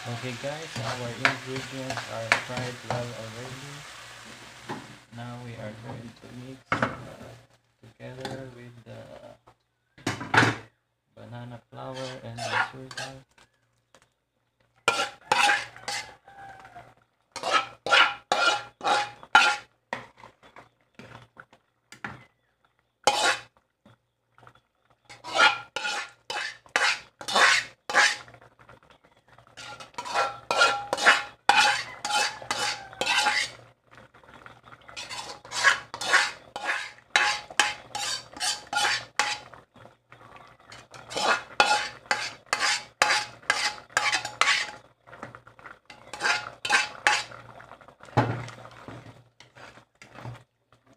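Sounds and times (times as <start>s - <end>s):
spoon scraping a metal pan: 0.0s - 4.0s, 11.8s - 13.3s, 14.8s - 16.4s, 17.4s - 20.3s, 23.0s - 23.5s, 25.1s - 28.4s, 29.6s - 33.6s, 34.9s - 39.6s, 40.7s - 44.9s, 45.9s - 47.4s, 48.5s - 50.4s.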